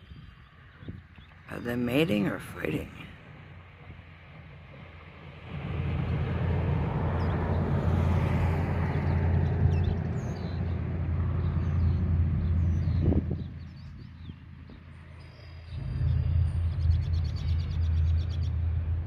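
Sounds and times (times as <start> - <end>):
vehicle passing by: 5.3 - 14.4.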